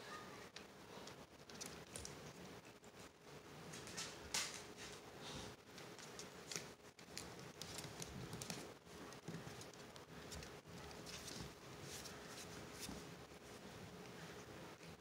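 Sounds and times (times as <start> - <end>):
puppy claws on tiles: 0.5 - 3.1, 3.7 - 5.0, 5.6 - 13.1.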